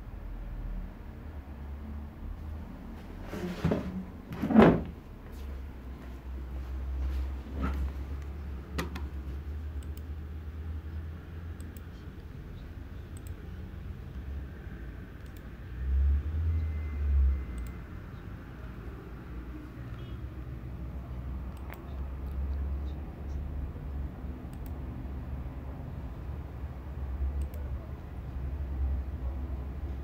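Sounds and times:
soft clicks: 8.1s - 10.2s, 11.5s - 12.4s, 13.1s - 14.3s, 15.1s - 15.6s, 17.5s - 17.8s, 21.4s - 23.4s, 24.5s - 24.8s, 27.4s - 27.7s.

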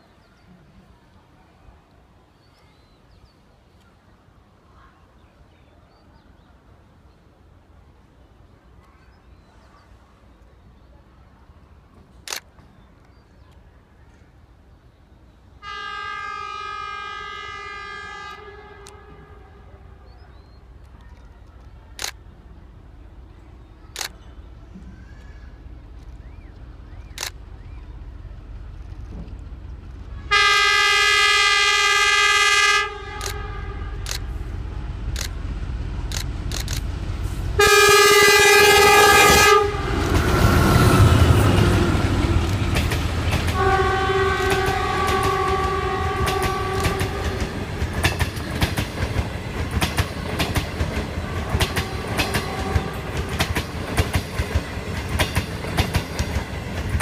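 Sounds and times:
locomotive engine rumble: 6.0s - 57.0s
train horn blasts: 15.6s - 20.1s, 30.2s - 34.3s, 37.6s - 42.6s, 43.5s - 47.7s, 51.3s - 53.4s
train wheels clicking on rail joints: 20.6s - 22.5s, 23.4s - 30.3s, 33.1s - 37.6s, 38.8s - 57.0s.

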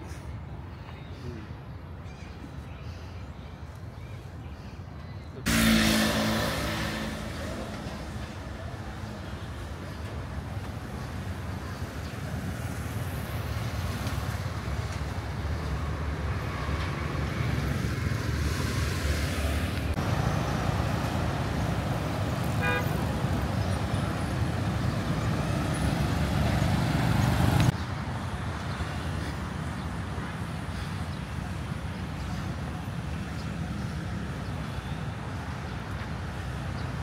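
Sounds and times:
traffic rumble: 0.0s - 37.0s
car horn toot: 22.6s - 23.0s.

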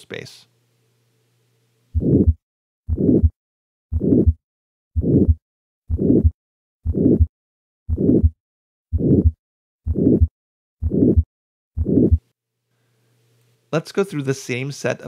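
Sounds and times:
harsh heart murmur: 2.0s - 4.4s, 5.0s - 7.3s, 7.9s - 12.2s
heartbeat through stethoscope: 2.0s - 4.4s, 5.0s - 7.3s, 7.9s - 12.3s.

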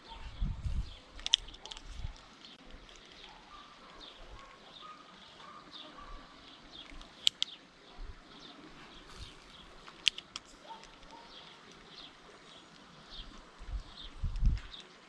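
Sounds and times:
sharp clicks: 1.1s - 4.6s, 6.8s - 7.6s, 9.8s - 12.0s
small bird chirping: 8.5s - 14.9s.

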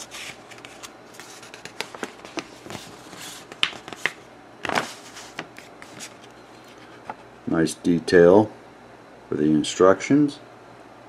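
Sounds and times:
paper pages rustling: 0.0s - 7.2s.

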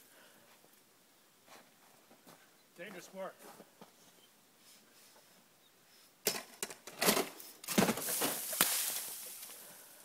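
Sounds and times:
sharp crack: 6.2s - 9.6s
snow crunching and scraping: 7.7s - 9.9s
hiss: 8.0s - 10.0s.

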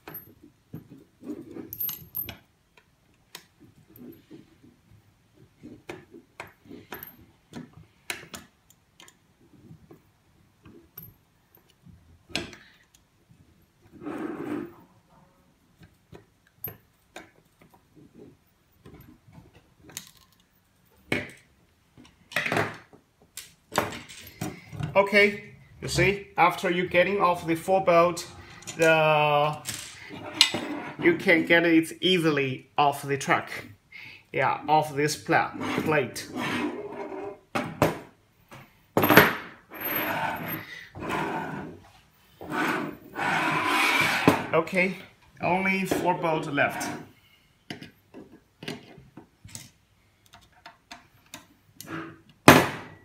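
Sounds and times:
metal scraping on metal and wood: 13.8s - 15.3s, 23.8s - 31.5s, 35.4s - 37.5s, 39.7s - 47.3s, 51.8s - 52.4s
metal clattering on wooden table: 23.7s - 24.9s
metal parts clattering: 23.8s - 24.9s, 29.6s - 30.6s.

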